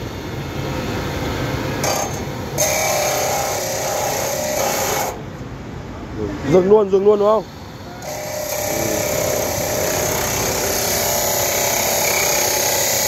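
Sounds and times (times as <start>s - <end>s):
abrasive cut-off saw grinding metal: 1.8s - 5.2s, 8.0s - 13.0s.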